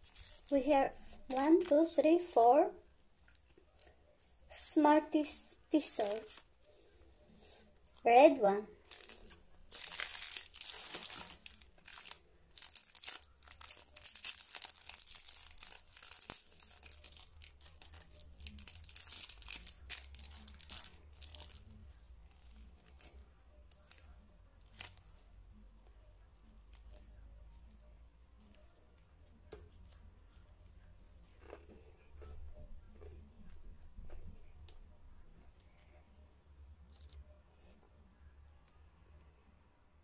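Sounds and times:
foil wrapper crinkling and tearing: 0.0s - 2.4s, 5.7s - 6.7s, 8.8s - 25.3s, 26.3s - 27.7s.

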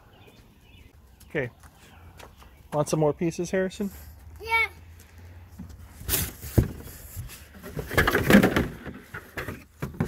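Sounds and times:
cardboard and plastic rustling: 5.7s - 10.0s.

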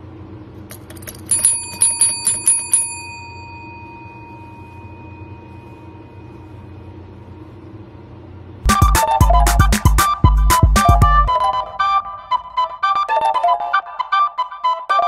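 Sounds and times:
desk service bell dinging: 0.9s - 6.5s.

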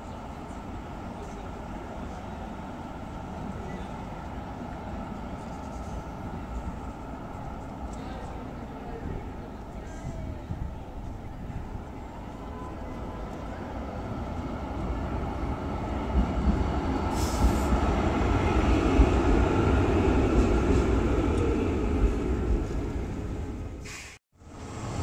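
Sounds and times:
tram rumbling on rails: 0.0s - 25.0s
short hiss: 23.8s - 24.2s.

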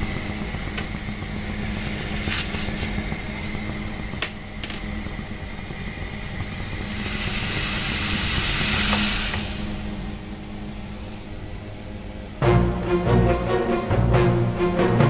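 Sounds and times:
tea bubbling and hissing: 0.0s - 12.0s
gas stove burner running: 0.0s - 13.3s.

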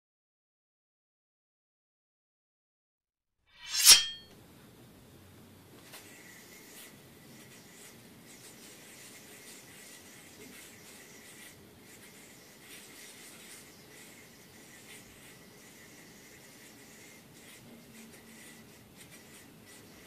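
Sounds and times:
yo-yo spinning whir: 3.6s - 4.2s, 6.0s - 20.0s
yo-yo string rubbing: 3.6s - 4.2s.

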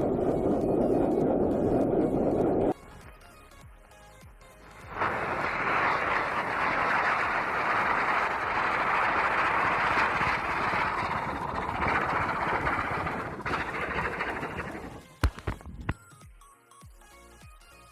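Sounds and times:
firework spark jet hissing: 4.8s - 15.1s.

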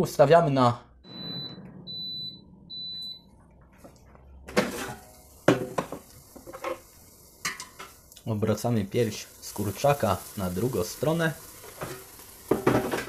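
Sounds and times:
low hum: 1.0s - 5.4s
short high beeps: 1.1s - 3.3s.

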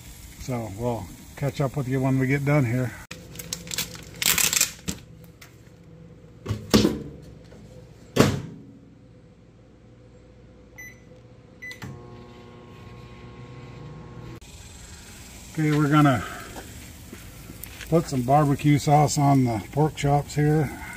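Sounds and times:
microwave oven humming: 8.8s - 15.6s
keypad beeps: 10.8s - 11.8s.

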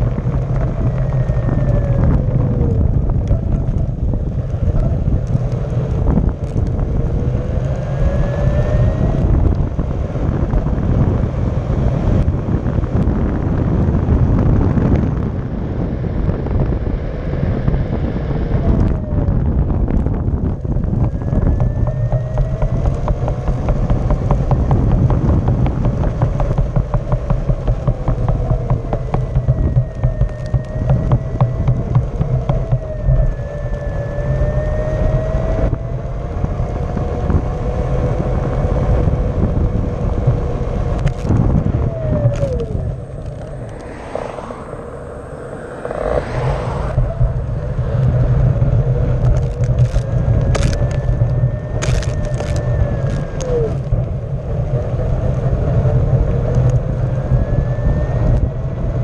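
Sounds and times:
electric motor whining: 17.6s - 59.0s
tyre rumble on asphalt: 19.2s - 35.5s, 36.4s - 57.4s.

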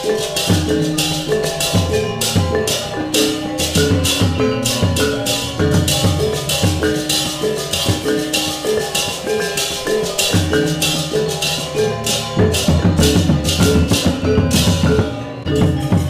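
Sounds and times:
gamelan ensemble playing: 0.0s - 16.0s
hand drum strokes: 0.0s - 16.0s.

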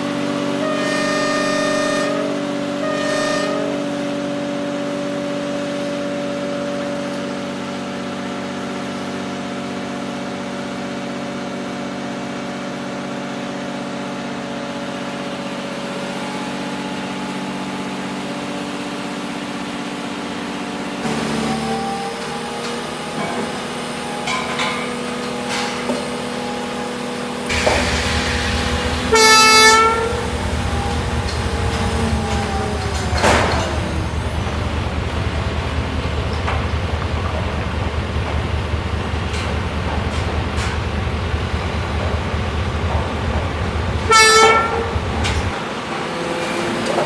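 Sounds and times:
train horn blast: 0.0s - 7.5s, 21.0s - 22.5s, 24.9s - 35.1s, 44.0s - 45.5s
locomotive engine running: 0.0s - 47.0s.

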